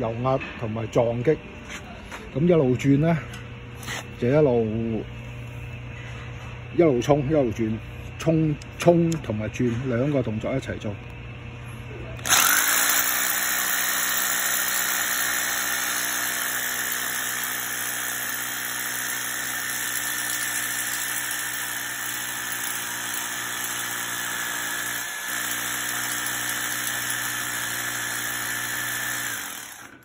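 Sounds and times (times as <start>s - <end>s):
hammer drill boring into concrete: 12.2s - 30.0s.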